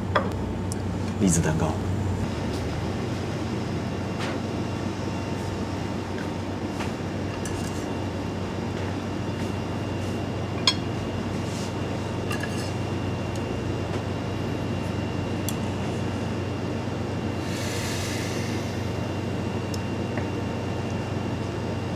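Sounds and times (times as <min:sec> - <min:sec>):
dishes and cutlery clinking: 0:10.6 - 0:10.9, 0:12.3 - 0:12.7.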